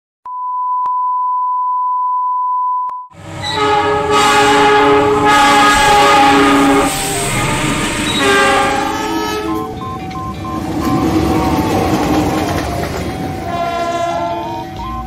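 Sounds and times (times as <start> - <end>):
electronic beep tone: 9.1 - 12.2, 14.4 - 15.0.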